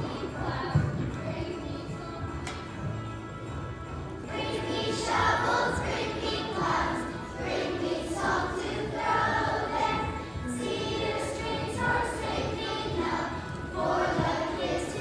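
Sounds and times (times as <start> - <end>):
children's choir singing: 0.0 - 3.1, 4.2 - 15.0.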